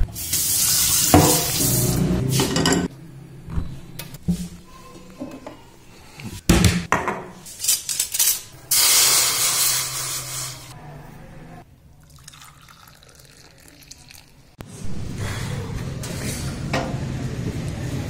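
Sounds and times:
water pouring into a metal pot: 12.0s - 14.4s.

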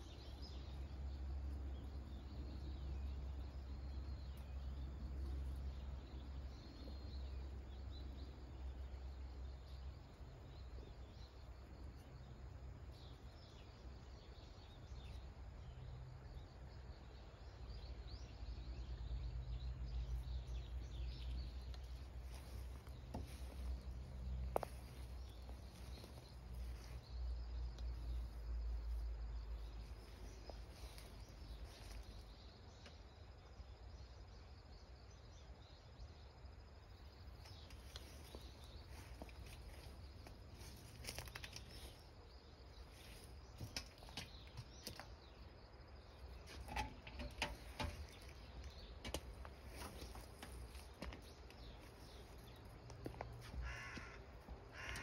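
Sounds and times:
faint insects chirping: 0.0s - 55.0s.

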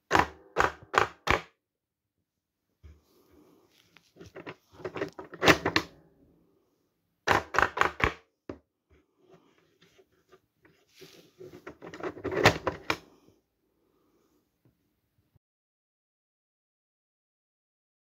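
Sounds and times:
plastic pinball targets clacking: 7.3s - 8.2s.

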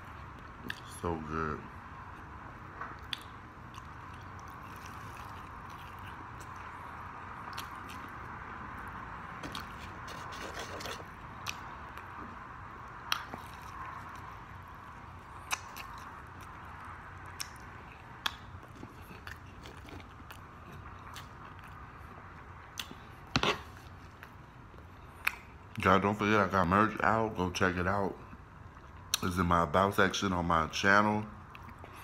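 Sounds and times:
wet mouth clicks and smacks: 3.0s - 6.7s, 13.0s - 13.9s, 15.4s - 16.5s, 17.2s - 19.5s, 22.7s - 23.0s, 25.2s - 25.5s
chewing and biting fried chicken: 3.0s - 25.7s.

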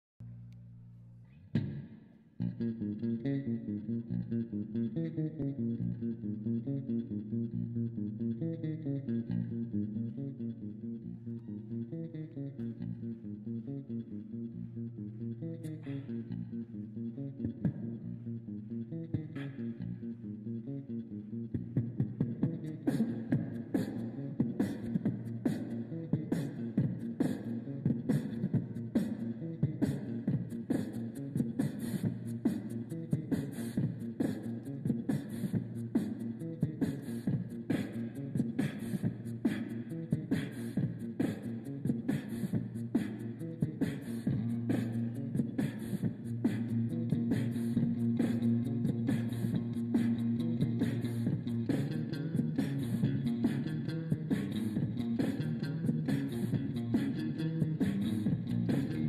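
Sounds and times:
background music with steady beat: 21.6s - 59.0s.

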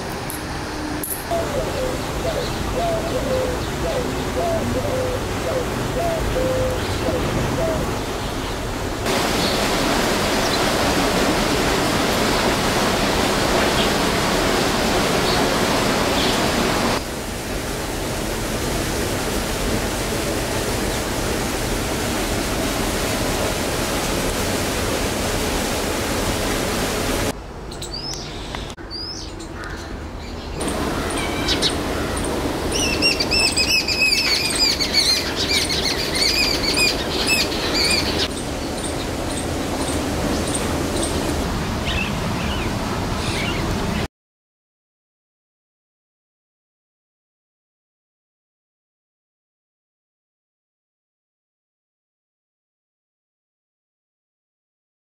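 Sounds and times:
steady outdoor hiss: 0.0s - 44.1s
small birds chirping: 27.7s - 43.7s
bird calling rapidly: 30.6s - 39.4s.

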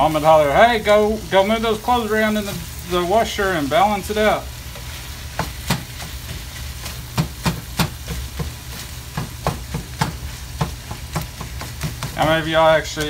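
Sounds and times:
meat sizzling: 0.0s - 13.0s
plastic chopper knocking in skillet: 5.3s - 12.3s.

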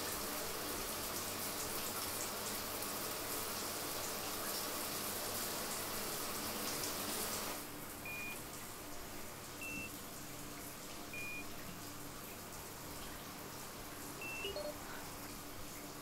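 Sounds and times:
running water hissing: 0.0s - 16.0s
keypad lock beeps: 8.1s - 8.4s, 9.6s - 9.9s, 11.2s - 11.4s, 14.2s - 14.8s.

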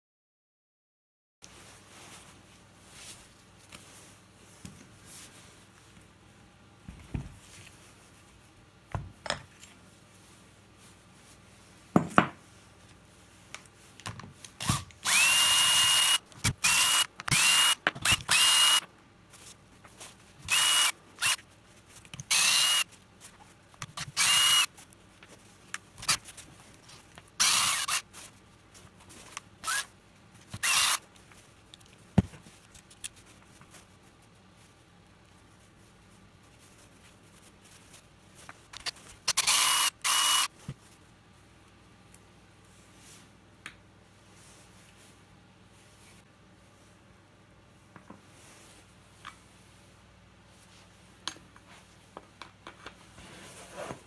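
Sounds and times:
cordless drill whirring: 14.6s - 18.9s, 20.5s - 21.4s, 22.2s - 22.9s, 23.9s - 24.7s, 27.4s - 28.0s, 29.6s - 29.9s, 30.6s - 31.0s, 38.8s - 40.5s.

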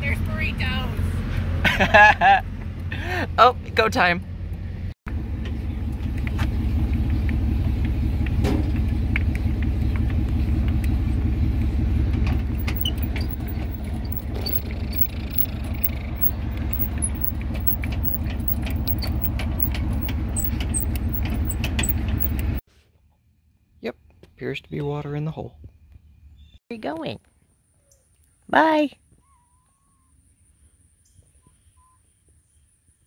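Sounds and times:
vehicle road and engine rumble: 0.0s - 22.6s
loose items rattling and jangling: 12.3s - 22.6s.

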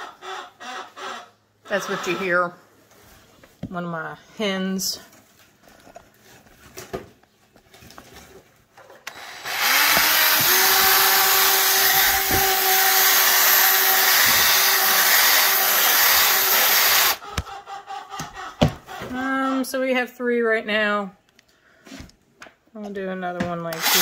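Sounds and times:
electric drill boring rubber: 9.1s - 17.2s, 23.7s - 24.0s.

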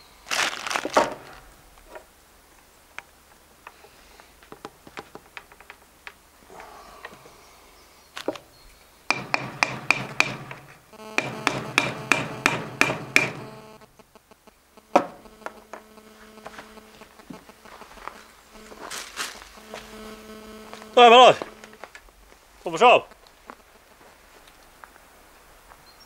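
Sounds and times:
louder knock: 9.1s - 10.6s, 11.2s - 13.6s.

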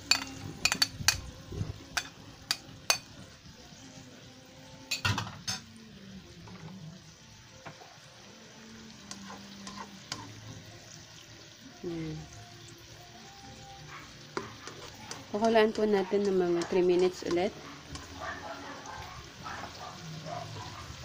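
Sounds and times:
knocks and clinks against pan: 0.0s - 1.2s
food sizzling in a wok: 0.0s - 21.0s.

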